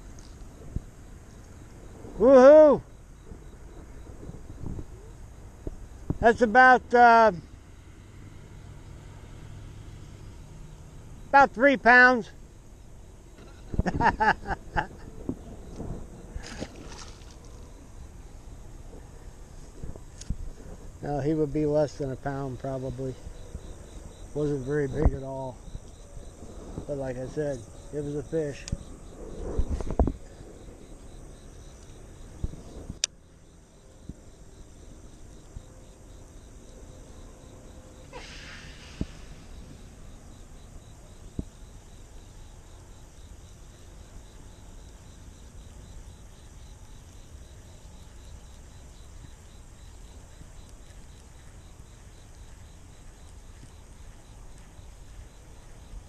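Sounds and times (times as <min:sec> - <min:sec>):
insects chirping: 0:00.0 - 0:56.0
low outdoor noise: 0:00.0 - 0:56.0
short hiss: 0:38.0 - 0:39.6.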